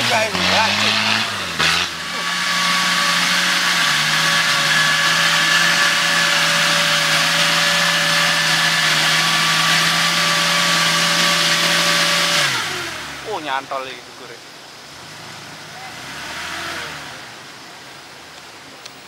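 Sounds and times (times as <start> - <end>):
electric winch motor whining: 0.3 - 13.0.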